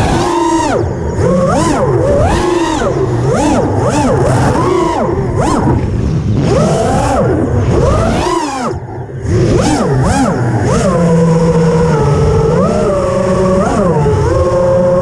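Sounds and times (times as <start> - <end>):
quadcopter motors whining: 0.0 - 15.0.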